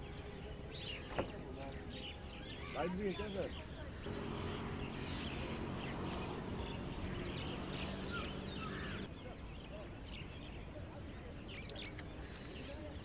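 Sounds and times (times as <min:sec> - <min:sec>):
steady low hum: 0:03.9 - 0:09.1.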